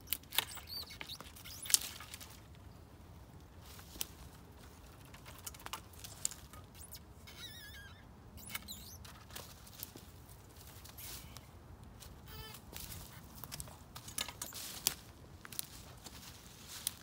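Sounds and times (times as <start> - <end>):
bird warbling: 0.4 - 2.0, 6.7 - 9.0.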